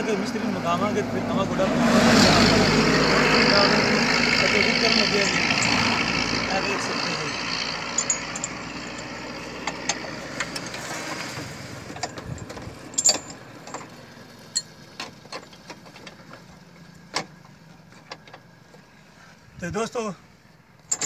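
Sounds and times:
car engine idling: 2.5 - 19.5
metal chain clinking: 4.3 - 10.8, 11.9 - 16.0, 20.8 - 21.0.

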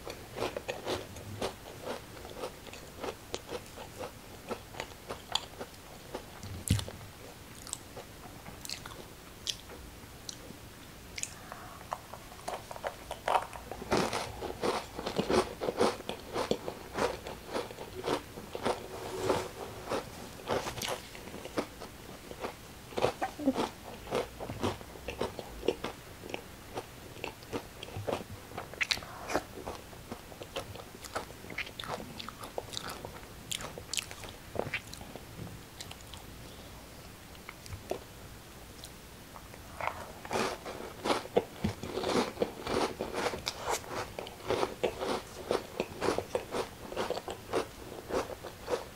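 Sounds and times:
crackers crunching: 11.2 - 35.0, 38.8 - 48.9.

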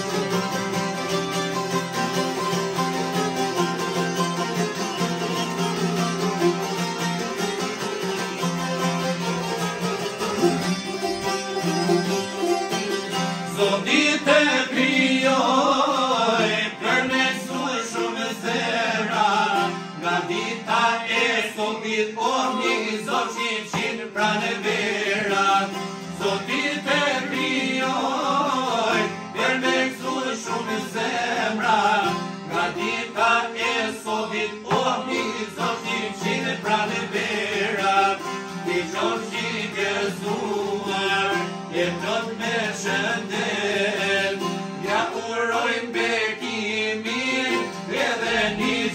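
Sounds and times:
plucked lutes: 0.0 - 48.9
man singing: 13.5 - 48.9.

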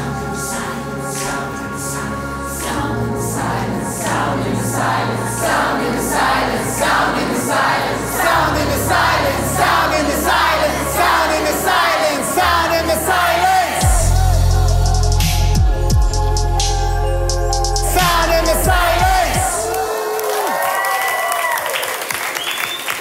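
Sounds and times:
group of voices singing: 0.0 - 20.2
electronic beat: 11.2 - 19.8
deep bass with downward slides: 13.2 - 19.8.

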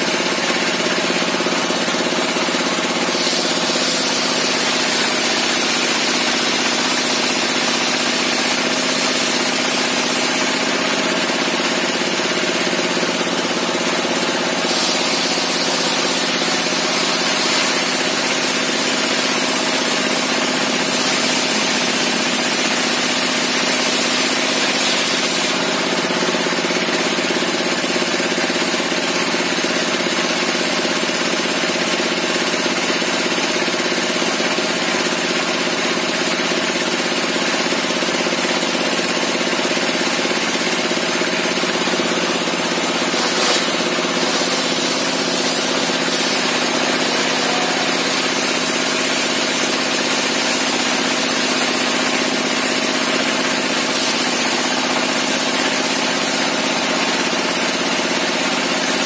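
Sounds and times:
circular saw running: 0.0 - 59.0
saw blade ripping through log: 42.2 - 49.5.

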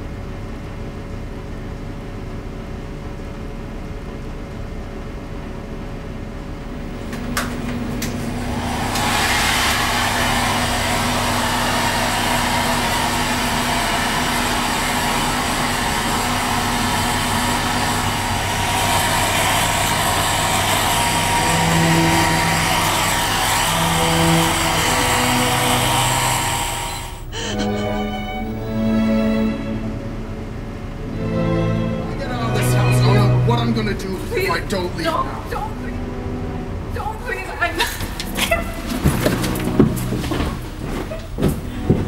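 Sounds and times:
hair dryer blowing air: 8.0 - 28.8.

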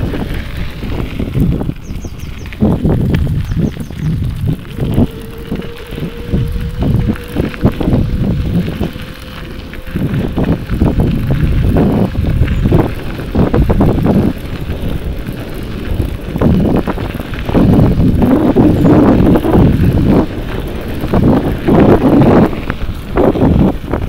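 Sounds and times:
wind buffeting microphone: 0.0 - 24.0
faint steady whine: 4.4 - 12.2.

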